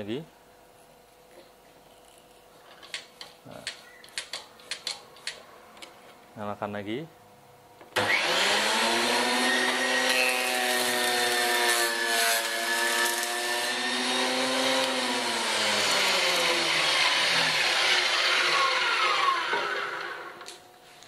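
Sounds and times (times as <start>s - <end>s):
thickness planer shaving board: 8.0s - 20.3s.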